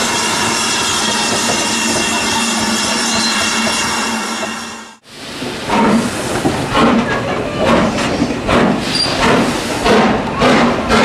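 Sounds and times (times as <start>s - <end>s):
steam locomotive exhaust beats: 0.0s - 11.0s
steady hiss of steam: 7.7s - 10.6s.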